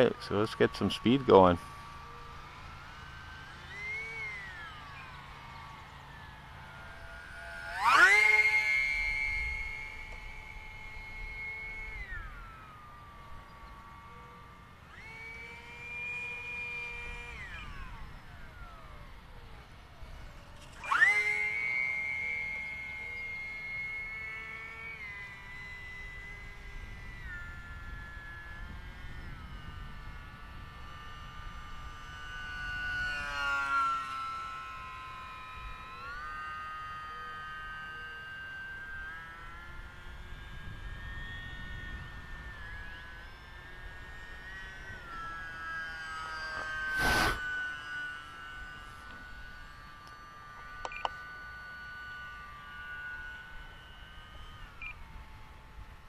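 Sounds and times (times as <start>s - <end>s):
model plane motor whining: 0.0s - 56.0s
sharp clicks: 50.8s - 51.2s.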